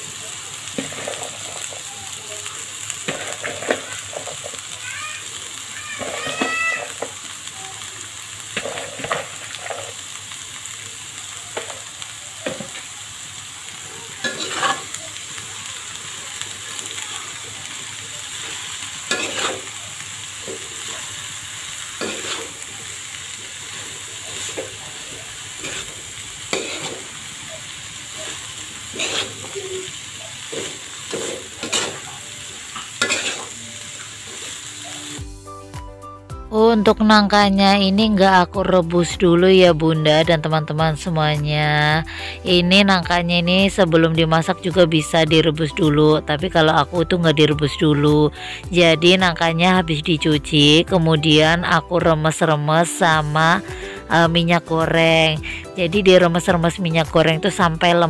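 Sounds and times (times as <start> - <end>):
food sizzling in oil: 0.0 - 58.0
metal spatula scraping pan: 14.2 - 15.0, 19.1 - 19.7, 22.0 - 22.6, 25.6 - 27.1, 28.1 - 32.1, 33.0 - 33.6.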